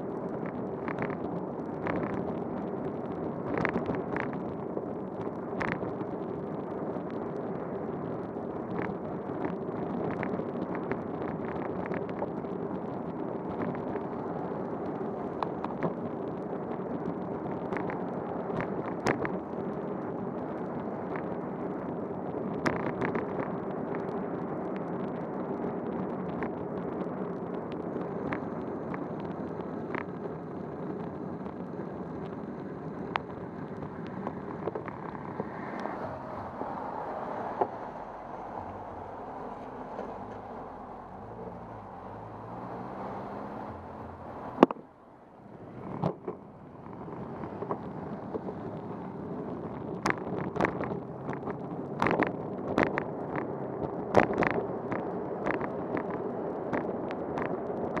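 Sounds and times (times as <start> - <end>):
tyre and road noise: 0.0 - 58.0
wind on microphone: 0.0 - 58.0
sharp ticks and knocks: 44.6 - 44.8, 50.0 - 53.5, 54.1 - 58.0.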